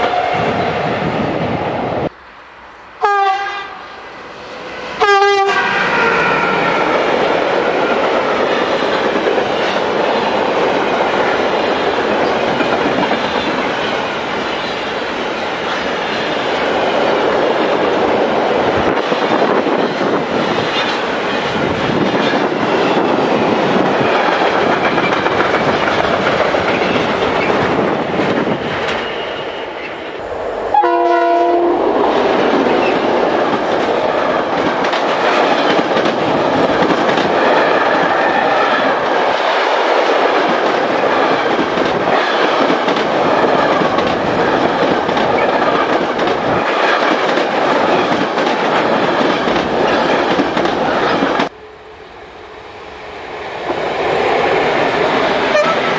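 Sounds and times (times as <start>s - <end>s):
locomotive horn blast: 3.0s - 7.0s, 30.7s - 31.9s, 55.5s - 55.9s
freight train wheels clicking: 6.5s - 29.2s, 32.0s - 51.6s.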